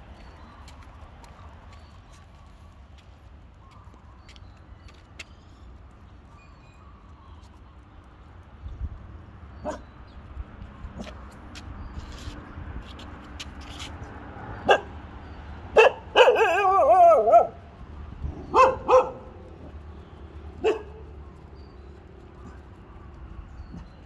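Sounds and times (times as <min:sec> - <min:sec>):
dog barking: 0:09.6 - 0:09.9, 0:14.6 - 0:14.9, 0:15.7 - 0:17.6, 0:18.4 - 0:19.4, 0:20.6 - 0:21.0.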